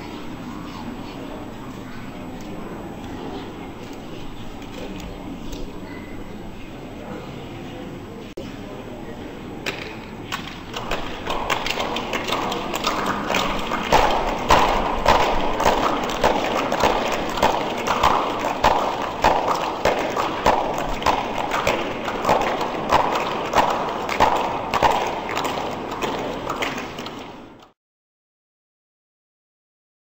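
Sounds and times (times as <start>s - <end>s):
large hall background noise: 0.0s - 27.8s
rhythmic thumps: 10.8s - 26.5s.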